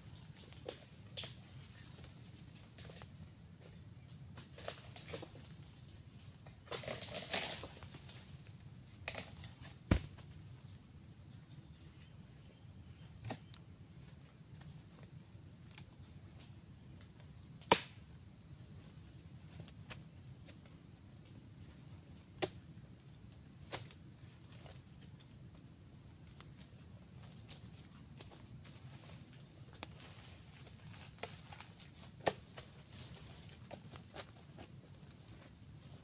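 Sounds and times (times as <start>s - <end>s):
insect chorus: 0.0s - 36.0s
sharp knocks and thuds: 9.6s - 10.4s.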